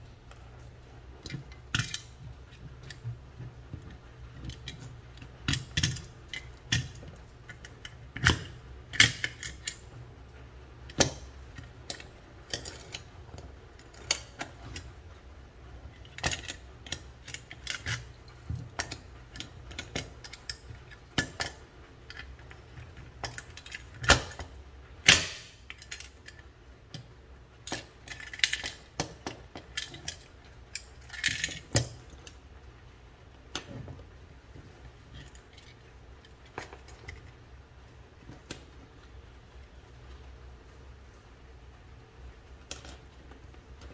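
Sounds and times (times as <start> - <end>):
keys jingling: 29.8 - 32.4.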